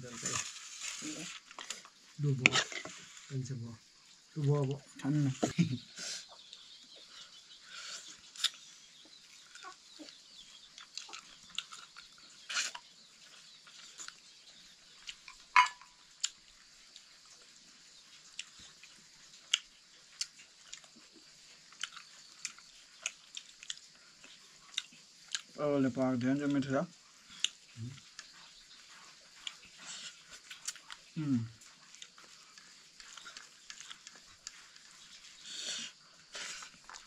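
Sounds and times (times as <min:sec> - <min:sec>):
faint hiss: 0:00.0 - 0:07.0, 0:33.9 - 0:36.9.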